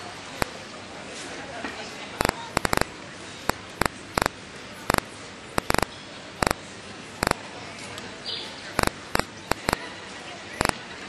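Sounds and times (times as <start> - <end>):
sharp clicks: 2.2 - 2.9, 3.5 - 6.6, 8.8 - 9.8, 10.6 - 10.8.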